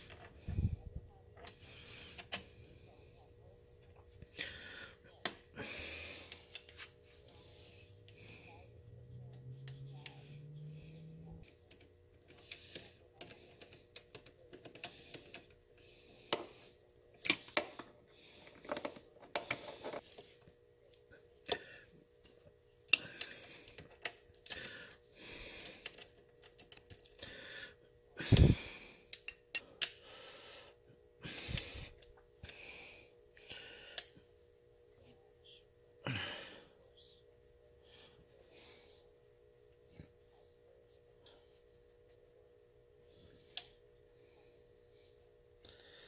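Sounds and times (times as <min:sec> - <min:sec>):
tools and parts clicking: 0:11.4 - 0:15.6, 0:25.8 - 0:27.2, 0:28.3 - 0:30.0.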